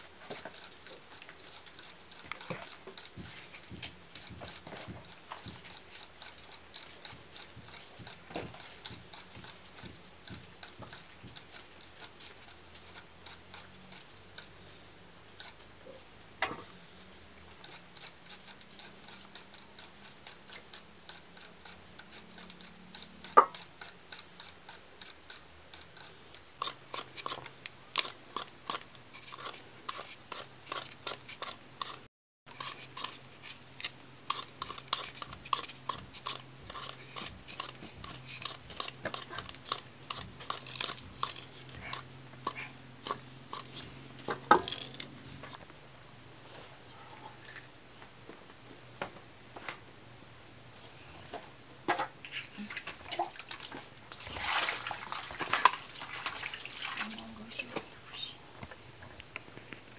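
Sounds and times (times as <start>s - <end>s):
peeler scraping potato skins: 0.0s - 14.6s, 15.3s - 15.7s, 17.5s - 45.1s.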